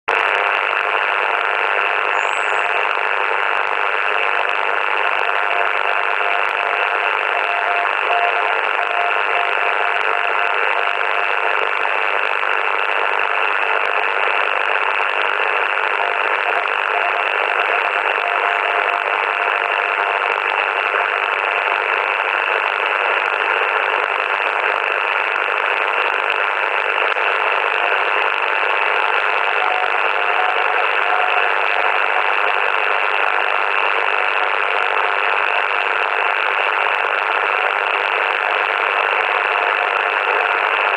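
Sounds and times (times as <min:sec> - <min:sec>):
radio static: 0:00.1 - 0:40.9
faint morse code tone: 0:02.0 - 0:03.0, 0:04.3 - 0:12.3, 0:15.8 - 0:21.8, 0:27.1 - 0:35.2.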